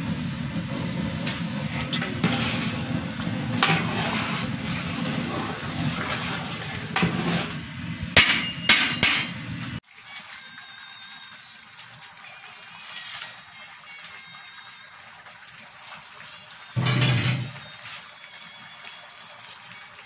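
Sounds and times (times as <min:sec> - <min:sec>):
metal spoon stirring in pot: 0:00.7 - 0:09.5
spoon clanging on pot: 0:08.2 - 0:09.4.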